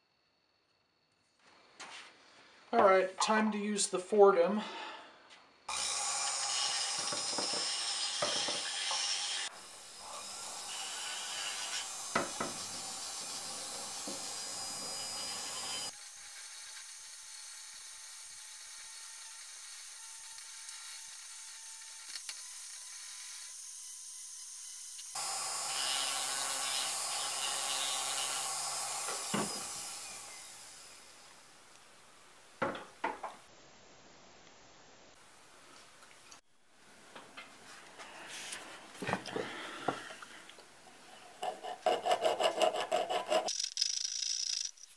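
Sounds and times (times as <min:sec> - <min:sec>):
rotary tool grinding wood: 0:05.7 - 0:31.0, 0:41.2 - 0:44.9.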